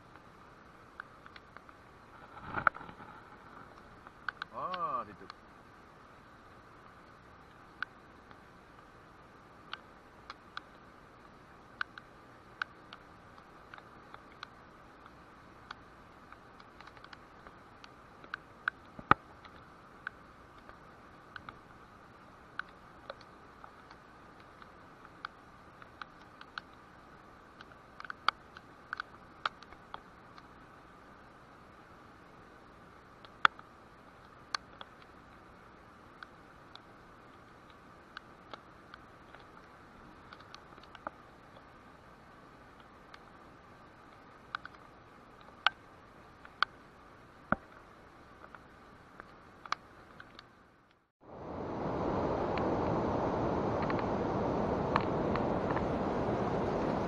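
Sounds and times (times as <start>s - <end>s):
raindrops ticking on a surface: 0.0s - 5.4s, 6.2s - 31.3s, 32.6s - 51.4s, 52.0s - 57.0s
faint steady hiss: 0.0s - 57.0s
steady rush: 51.2s - 57.0s.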